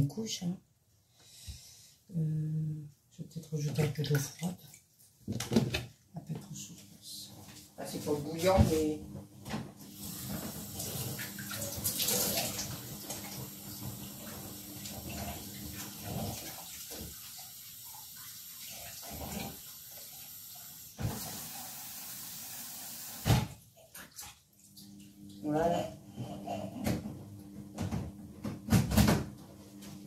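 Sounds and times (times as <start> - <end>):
water splashing: 10.2 - 13.9.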